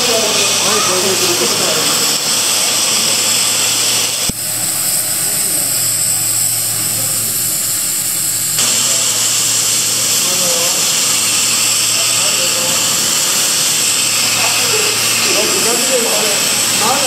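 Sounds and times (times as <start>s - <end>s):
cutting torch hissing: 0.0s - 17.0s.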